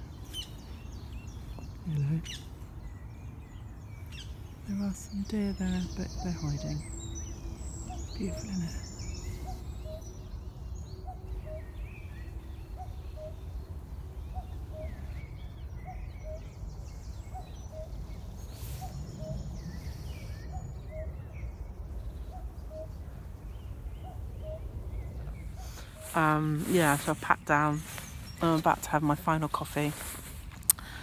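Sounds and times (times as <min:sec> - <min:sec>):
small birds singing: 0:00.0 - 0:31.0
steady low rumble: 0:00.0 - 0:31.0
cuckoo calling: 0:04.8 - 0:13.6, 0:14.2 - 0:21.2, 0:22.2 - 0:28.9.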